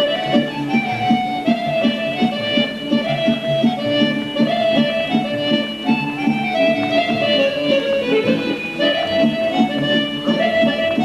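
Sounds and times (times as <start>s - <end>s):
folk dance music with accordions: 0.0s - 11.0s.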